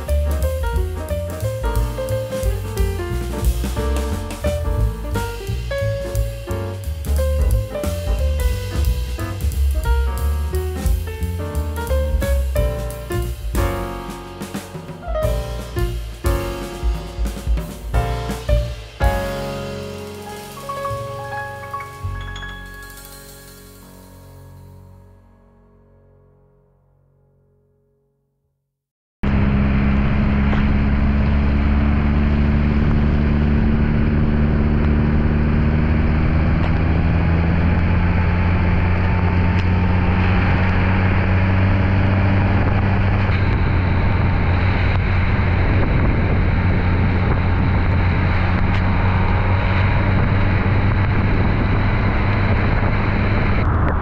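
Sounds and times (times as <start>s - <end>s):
car engine running: 29.2s - 54.0s
road and wind noise: 29.2s - 54.0s.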